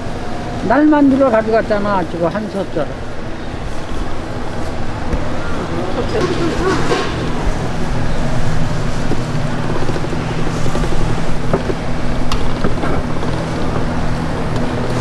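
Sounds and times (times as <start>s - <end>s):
dough roller motor hum: 5.6s - 15.0s.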